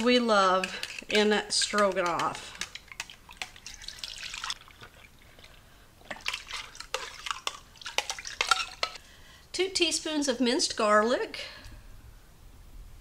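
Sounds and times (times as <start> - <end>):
spoon clicking against a can: 0.6 - 3.6.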